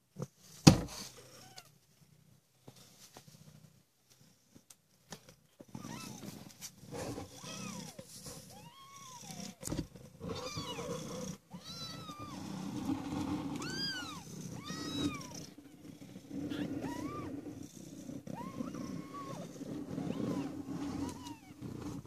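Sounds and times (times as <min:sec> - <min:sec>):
kittens mewing: 0:10.2 - 0:12.8, 0:13.6 - 0:17.5, 0:18.2 - 0:22.0.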